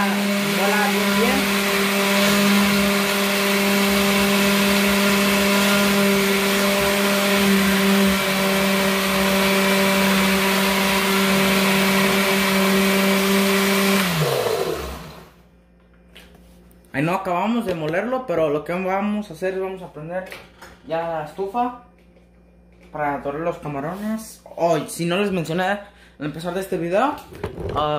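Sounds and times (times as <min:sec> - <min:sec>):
blender motor grinding: 0:00.0 - 0:15.4.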